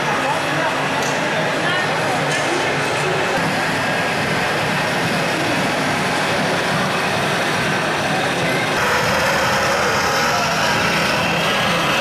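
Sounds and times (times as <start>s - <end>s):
background chatter: 0.0s - 12.0s
model truck engine drone: 2.8s - 12.0s.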